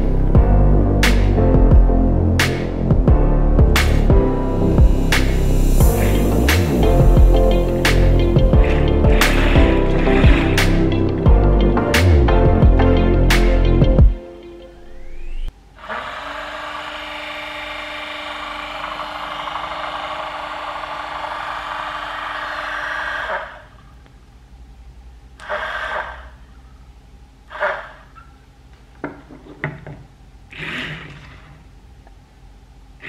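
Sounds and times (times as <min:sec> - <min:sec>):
small electric motor whirring: 0:15.8 - 0:23.8.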